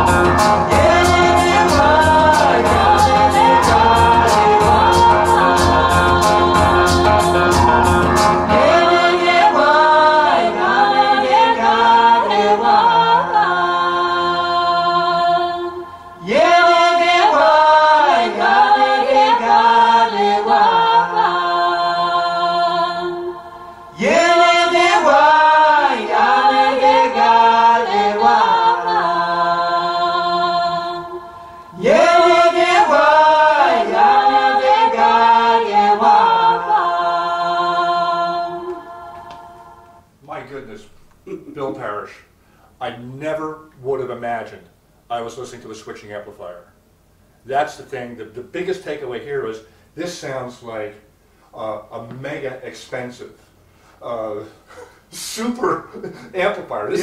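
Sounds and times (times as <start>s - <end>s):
voices singing in harmony: 0.0s - 42.9s.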